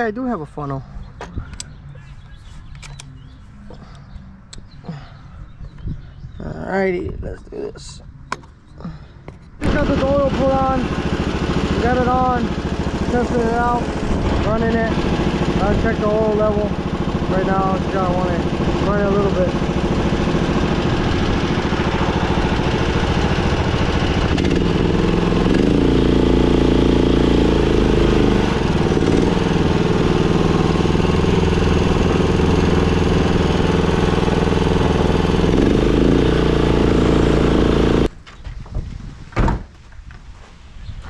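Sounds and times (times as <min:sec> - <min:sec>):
small gasoline engine running: 0:09.6 - 0:38.1.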